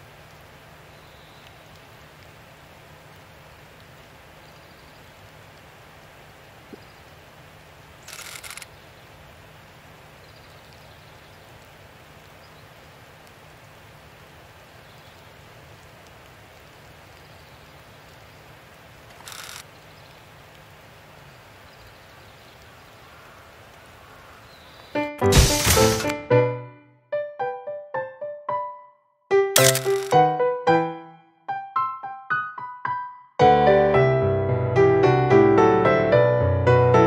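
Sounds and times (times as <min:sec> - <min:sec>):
brief hiss: 0:25.2 - 0:26.2, 0:29.6 - 0:30.1.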